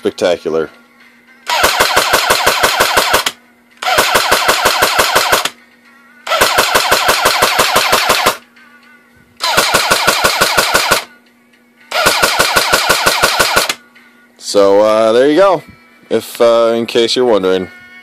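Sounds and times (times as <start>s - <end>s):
airsoft gun firing bursts: 1.5s - 5.6s, 6.3s - 8.4s, 9.4s - 11.1s, 11.9s - 13.8s.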